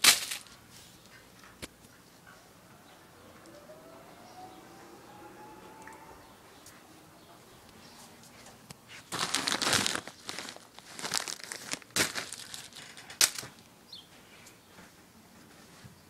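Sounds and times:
plastic bag crinkling: 0.0 - 0.6, 9.1 - 13.6
firework tubes rustling: 0.0 - 1.9, 8.0 - 13.6.

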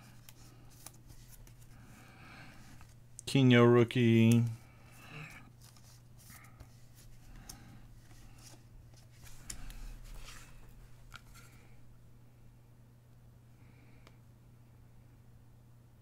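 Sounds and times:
baseball cards rustling and tapping: 0.0 - 1.8, 4.0 - 4.6, 5.6 - 11.7.

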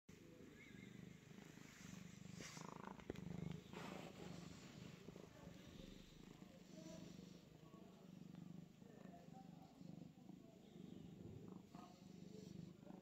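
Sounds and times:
cat purring faintly: 0.1 - 13.0.

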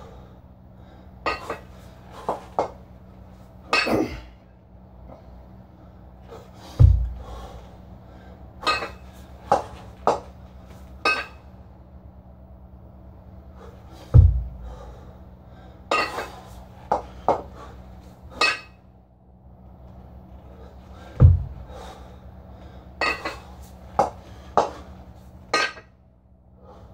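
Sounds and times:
heavy low thuds: 6.6 - 7.6, 14.0 - 15.0, 21.0 - 22.2
kettlebells clinking together: 8.6 - 10.3, 11.0 - 11.4, 15.9 - 17.5, 18.4 - 18.8, 23.0 - 24.7, 25.5 - 25.9.

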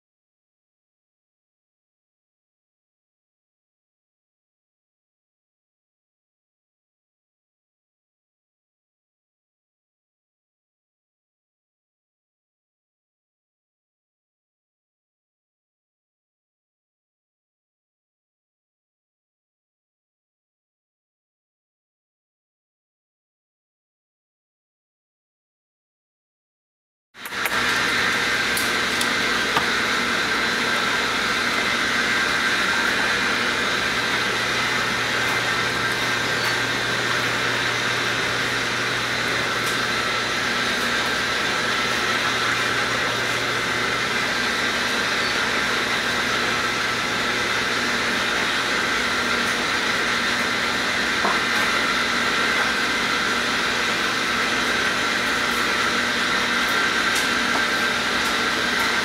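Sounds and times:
machine whir and hum: 27.2 - 59.0.

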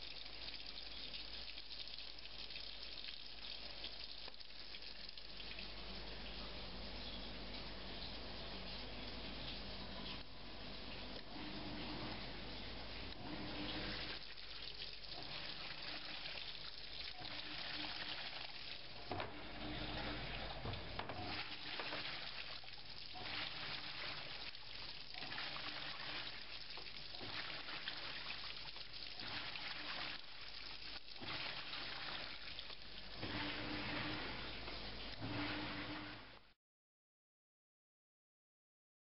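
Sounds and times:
water sloshing in washing machine: 10.9 - 36.5.

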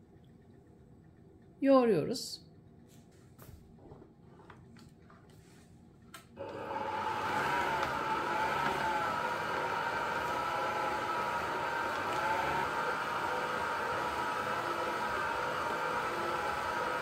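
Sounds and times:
stand mixer motor whining: 6.4 - 17.0.

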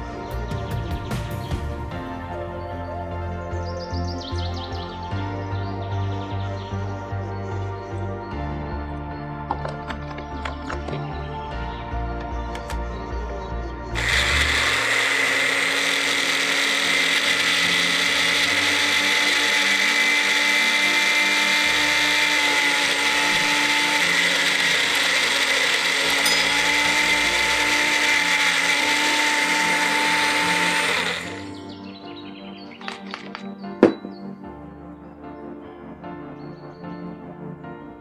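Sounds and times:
blender whining: 14.0 - 31.6.

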